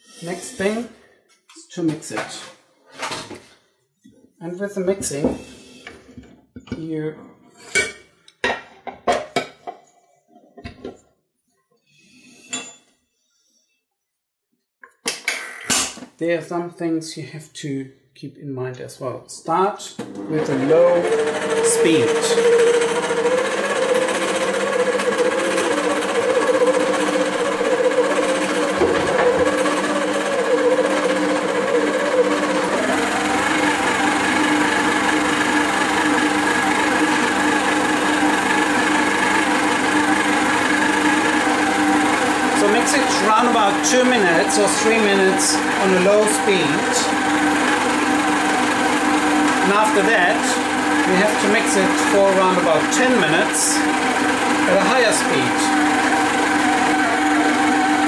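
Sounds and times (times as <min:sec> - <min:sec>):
stand mixer motor humming: 0:20.0 - 0:58.0.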